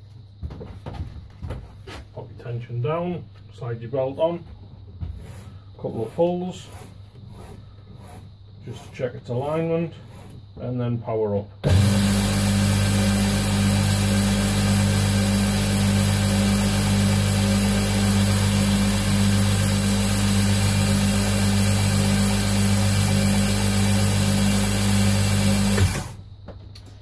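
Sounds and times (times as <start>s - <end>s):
abrasive belt hissing: 5.2s - 10.4s
belt grinder motor hum: 11.6s - 26.2s.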